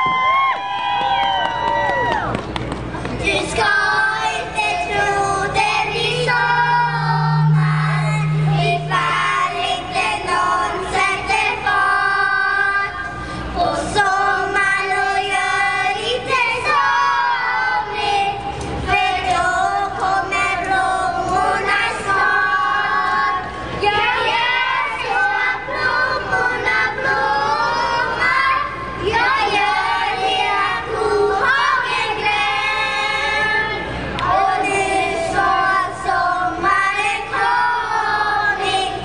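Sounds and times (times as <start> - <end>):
children's choir singing: 3.2 - 39.0
low steady tone: 4.8 - 11.8.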